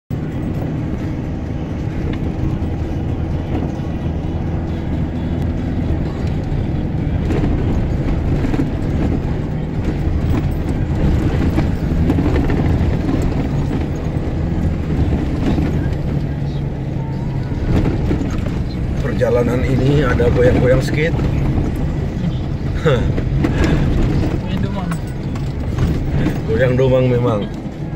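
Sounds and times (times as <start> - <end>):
tyres rolling on dirt road: 0.1 - 27.9
vehicle engine running: 0.1 - 27.9
knocks and rattles from bumps: 7.1 - 27.9.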